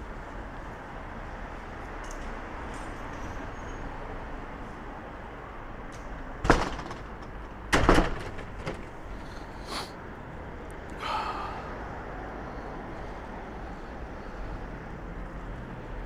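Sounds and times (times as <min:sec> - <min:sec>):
street traffic noise: 0:00.0 - 0:16.0
sharp knocks: 0:06.4 - 0:09.0.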